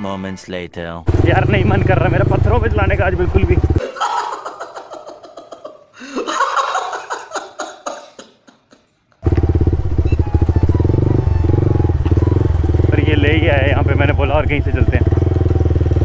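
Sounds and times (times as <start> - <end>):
motorcycle engine running: 1.1 - 3.8, 9.2 - 16.0
man laughing and sobbing: 3.8 - 8.9.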